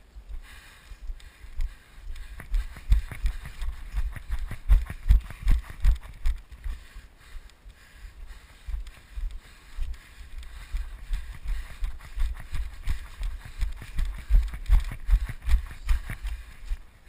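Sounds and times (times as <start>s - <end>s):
footsteps through grass: 8.3s - 16.8s.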